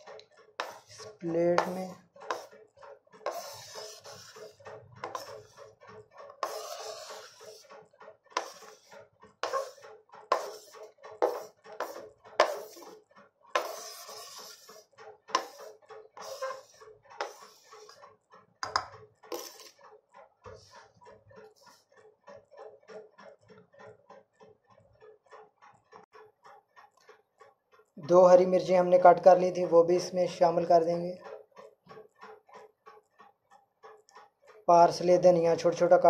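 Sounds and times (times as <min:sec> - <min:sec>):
knife scraping cutting board: 0:00.6 - 0:02.5, 0:03.2 - 0:07.7, 0:08.4 - 0:18.0, 0:18.6 - 0:19.8.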